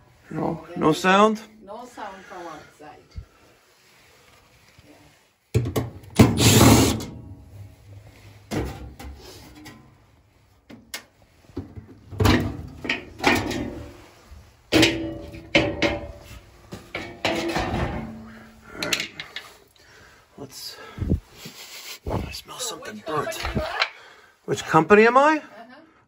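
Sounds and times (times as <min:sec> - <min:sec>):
sheet metal panels clanking: 0:05.6 - 0:09.9, 0:12.2 - 0:19.4.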